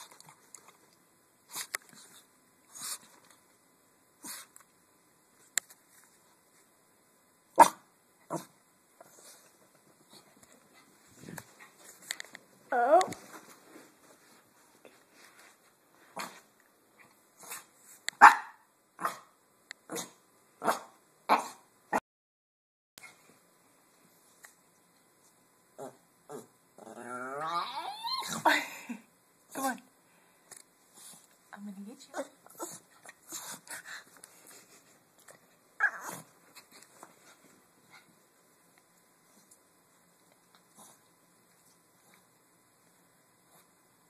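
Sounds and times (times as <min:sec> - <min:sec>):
small dog barking: 0:07.6 - 0:08.5, 0:18.2 - 0:19.3, 0:19.9 - 0:21.6.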